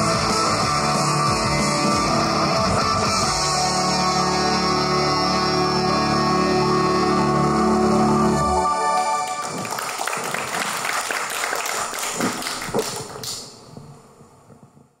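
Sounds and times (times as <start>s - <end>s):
audience clapping: 8.8s - 13.6s.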